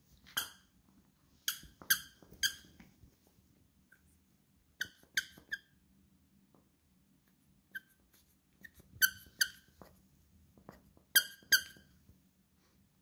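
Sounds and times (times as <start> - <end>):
plush toy squeaking: 4.8 - 5.8, 8.6 - 9.7, 11.1 - 11.8.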